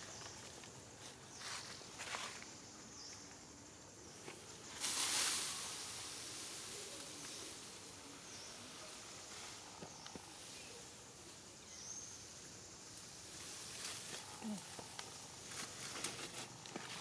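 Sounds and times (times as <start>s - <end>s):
insect drone: 0.0s - 17.0s
hissing rush of noise: 3.4s - 17.0s
rustling: 4.2s - 11.0s, 13.1s - 17.0s.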